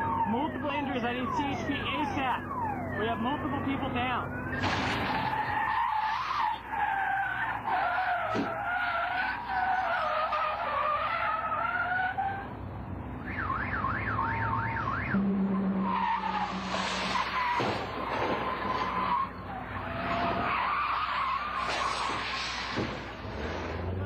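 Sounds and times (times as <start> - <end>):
police siren yelping: 0.0 - 12.5, 13.2 - 22.4
car tyres squealing: 4.3 - 12.6, 13.2 - 24.0.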